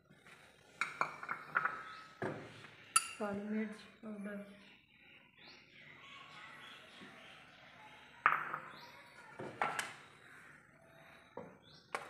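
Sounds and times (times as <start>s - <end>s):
metal spoon clinking on ceramic: 3.0s - 3.2s.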